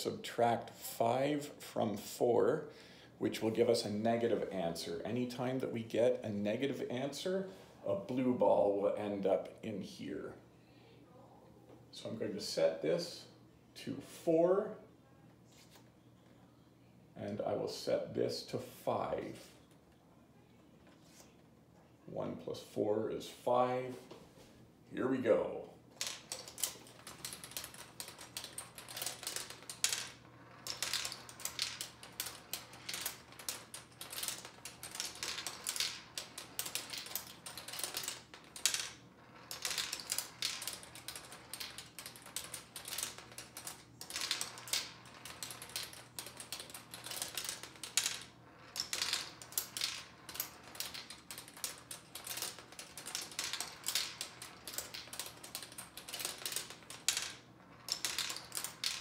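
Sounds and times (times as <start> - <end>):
marbles clattering on plastic ramps: 26.0 - 59.0.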